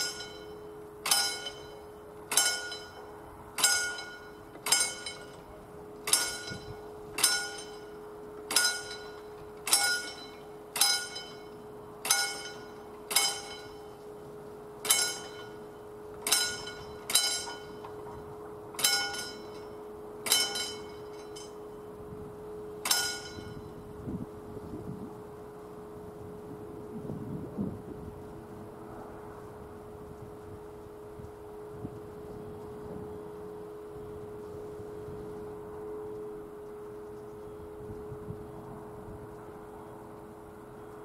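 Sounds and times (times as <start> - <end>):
crossing warning bell ringing: 0.0 - 26.4, 29.8 - 40.6
low two-tone hum: 0.0 - 41.0.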